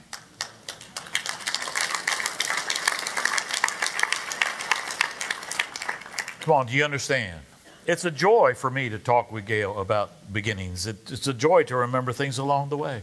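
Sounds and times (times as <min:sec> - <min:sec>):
crowd applauding: 0:00.0 - 0:06.6.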